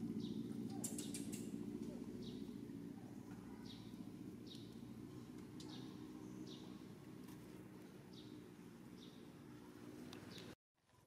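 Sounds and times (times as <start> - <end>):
low steady hum: 0.0 - 10.6
faint high bird chirps: 0.1 - 4.9.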